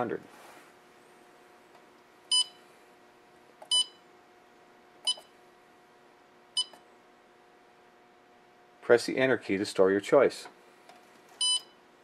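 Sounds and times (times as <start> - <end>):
short electronic keypad beeps: 2.3 - 2.6, 3.7 - 4.0, 5.1 - 5.3, 6.6 - 6.8, 11.4 - 11.7.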